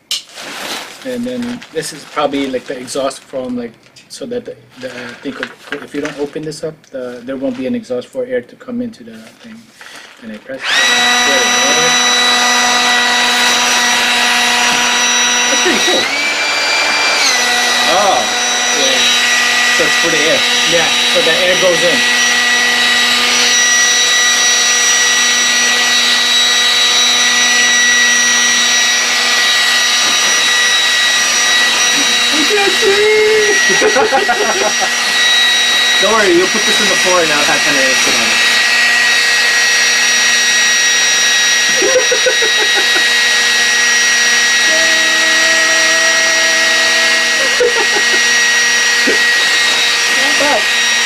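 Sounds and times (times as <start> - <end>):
air compressor whining: 9.4 - 51.0.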